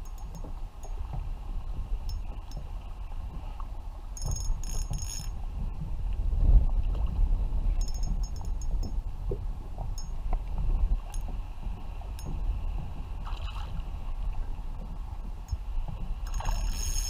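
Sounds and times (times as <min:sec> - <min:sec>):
water lapping against a hull: 0:00.0 - 0:17.0
wind on microphone: 0:00.0 - 0:17.0.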